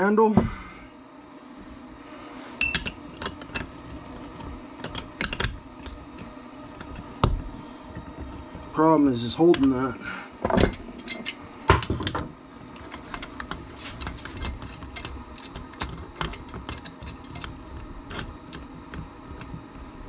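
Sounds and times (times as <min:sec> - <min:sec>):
pipe wrench clattering on metal: 0:10.4 - 0:18.7.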